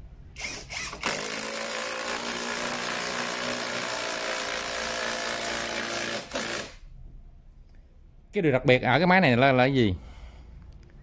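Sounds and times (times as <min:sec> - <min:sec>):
cordless drill motor whining: 0:00.4 - 0:03.9.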